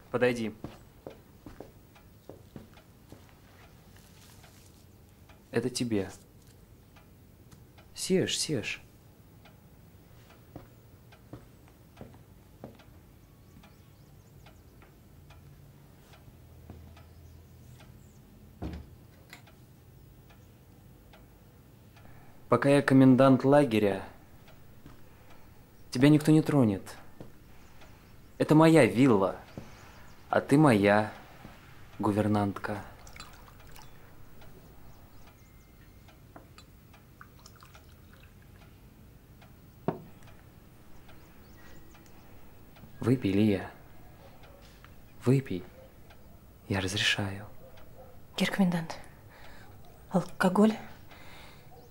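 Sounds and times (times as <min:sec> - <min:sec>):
faint ticking: 0:00.0 - 0:51.9
wooden door closing with thud: 0:18.6 - 0:18.9.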